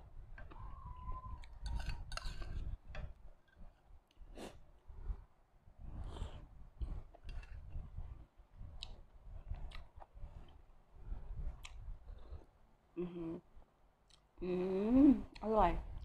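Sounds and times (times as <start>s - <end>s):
person chewing and sipping soup: 0.2s - 5.3s, 5.9s - 12.5s
person humming: 13.0s - 13.4s, 14.4s - 15.3s.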